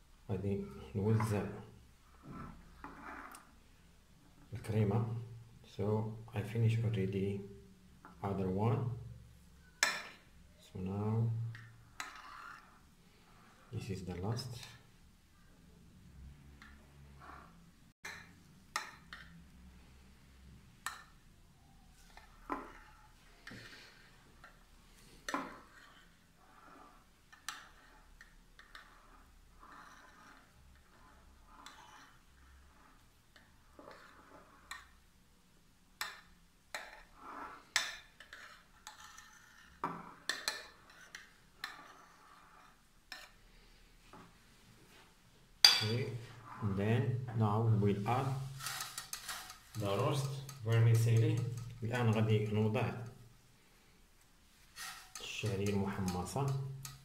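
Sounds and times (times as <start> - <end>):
faint spoon scraping: 0.4 - 5.4, 8.9 - 35.0, 36.7 - 45.0, 45.6 - 53.4, 54.2 - 57.0.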